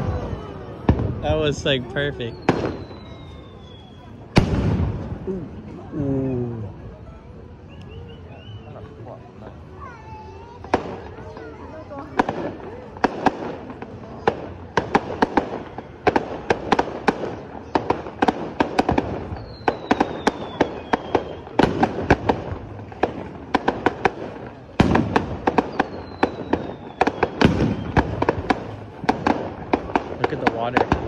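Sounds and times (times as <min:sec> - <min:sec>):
fireworks popping and cracking: 0:00.0 - 0:05.9, 0:09.6 - 0:31.0
falling firework whistles: 0:02.2 - 0:05.2, 0:07.6 - 0:08.9, 0:14.4 - 0:30.0
firework boom: 0:04.3 - 0:05.4, 0:16.2 - 0:31.0.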